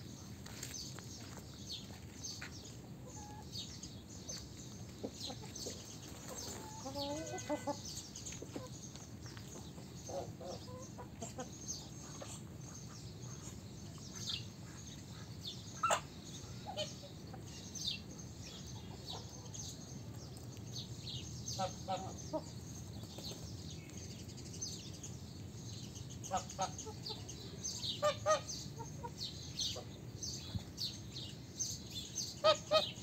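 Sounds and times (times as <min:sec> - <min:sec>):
hens clucking: 0:04.8 - 0:08.7.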